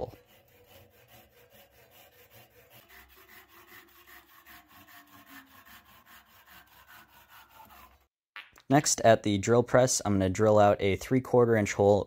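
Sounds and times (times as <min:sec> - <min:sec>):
handsaw cutting wooden dowel: 0:00.0 - 0:08.1.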